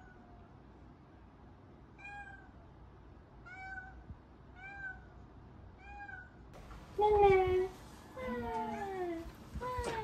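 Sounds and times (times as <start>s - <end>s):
cat meowing: 2.0s - 2.6s, 3.4s - 5.2s, 5.8s - 6.4s.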